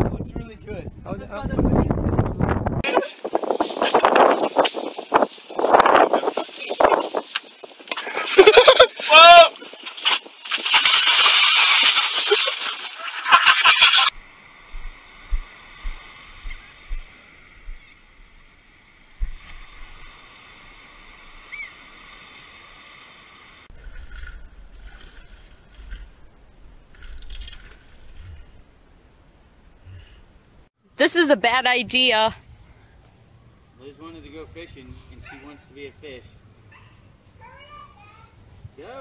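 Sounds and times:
person splashing into water: 0:09.6 - 0:14.0.

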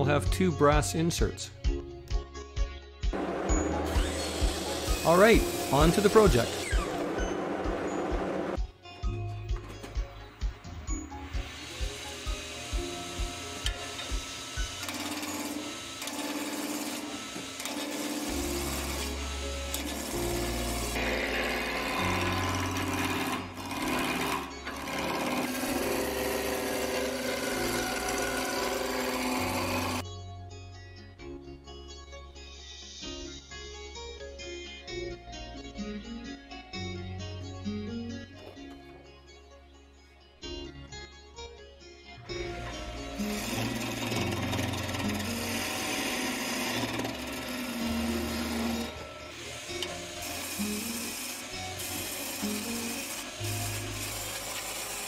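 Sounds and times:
wood lathe motor hum: 0:03.2 - 0:08.6, 0:11.3 - 0:30.0, 0:42.5 - 0:55.0
gouge scraping spinning wood: 0:03.6 - 0:08.6, 0:11.5 - 0:30.0, 0:43.0 - 0:55.0.

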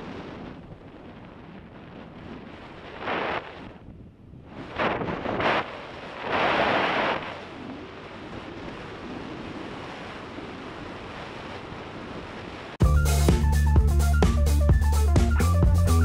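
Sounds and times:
wind buffeting microphone: 0:00.0 - 0:12.8.

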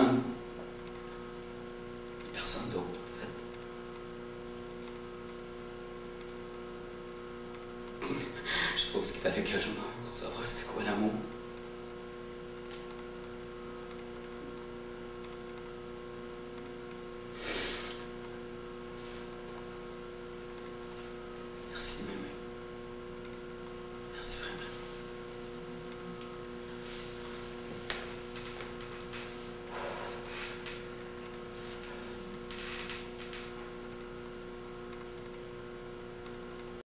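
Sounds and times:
electrical mains hum: 0:00.0 - 0:36.8
man breathing noisily: 0:17.3 - 0:18.0, 0:29.6 - 0:30.4
soft rustle: 0:26.7 - 0:30.6.

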